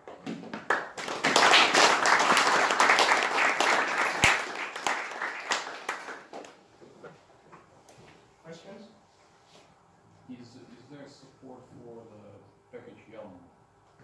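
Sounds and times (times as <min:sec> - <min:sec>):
audience applauding: 0:00.6 - 0:06.6.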